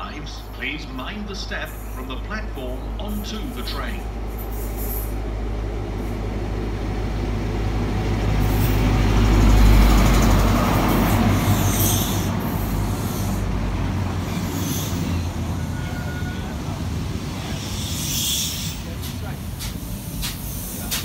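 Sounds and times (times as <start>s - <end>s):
diesel train engine rumble: 0.0s - 21.0s
train wheel noise: 0.0s - 21.0s.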